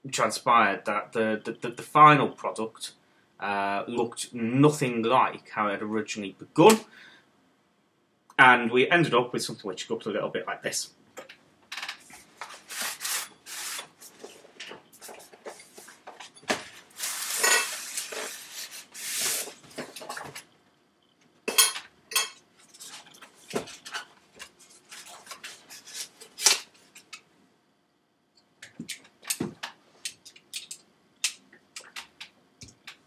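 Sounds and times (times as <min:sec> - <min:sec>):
objects clattering and clinking: 0:19.5 - 0:20.5.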